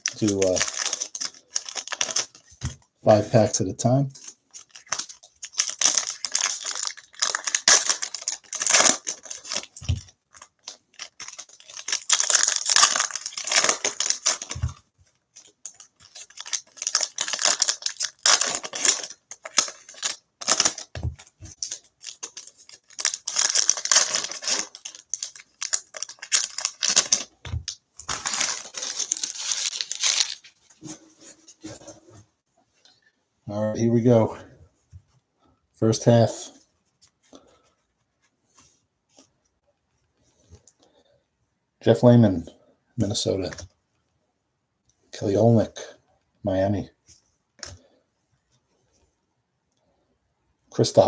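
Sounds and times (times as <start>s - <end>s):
foil wrappers tearing and crinkling: 0.0s - 2.4s, 4.6s - 14.8s, 15.4s - 27.3s, 28.0s - 30.6s.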